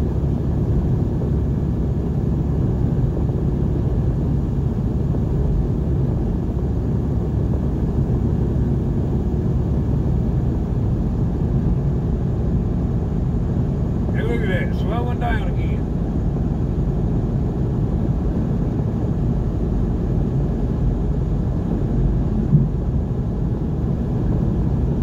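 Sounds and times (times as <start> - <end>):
road and engine rumble: 0.0 - 25.0.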